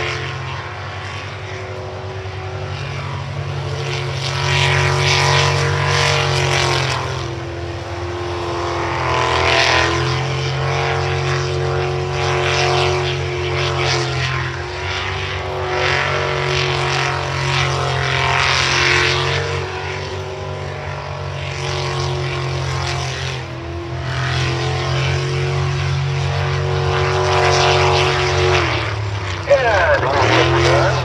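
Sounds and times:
boat engine at high revs: 0.0 - 31.0.

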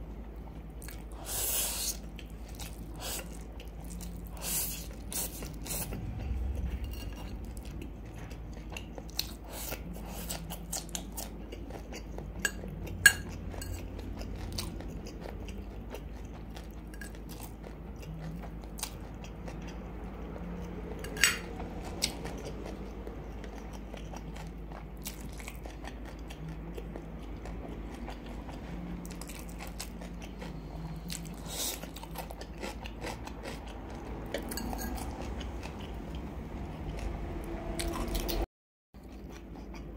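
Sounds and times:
close chewing of noodles: 0.4 - 39.9
metal fork clinking on ceramic bowl: 12.4 - 13.8, 21.0 - 21.4.

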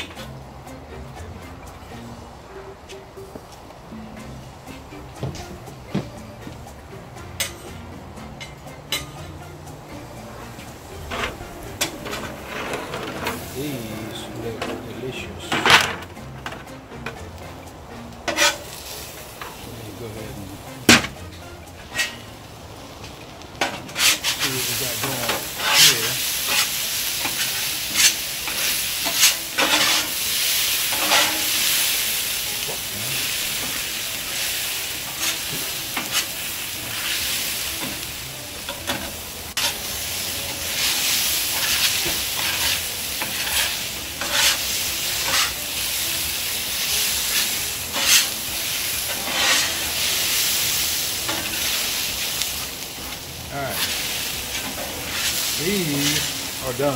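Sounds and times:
potatoes sizzling on a griddle: 10.4 - 15.5, 16.1 - 56.9
metal spatulas scraping and tapping: 18.3 - 18.7, 21.8 - 22.3, 23.6 - 30.2, 30.9 - 31.5, 41.6 - 45.6, 47.9 - 48.3.

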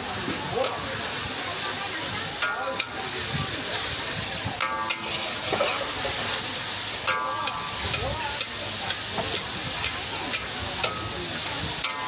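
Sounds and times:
shrimp sizzling in wok: 0.0 - 12.0
spatula scraping wok: 2.2 - 12.0
spatula clinking against wok: 4.5 - 6.3, 6.9 - 12.0.

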